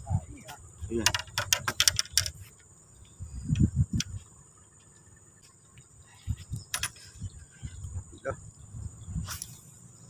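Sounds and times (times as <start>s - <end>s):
insects droning: 0.0s - 10.0s
small sharp metallic clicks: 1.0s - 2.4s, 6.6s - 7.0s.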